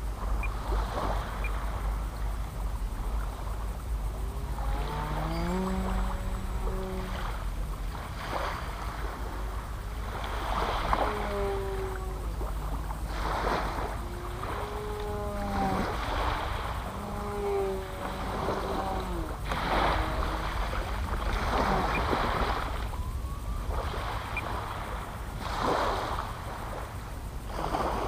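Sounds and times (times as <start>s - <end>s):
distant propeller aircraft drone: 0.0s - 28.0s
wind gusts on microphone: 0.0s - 28.0s.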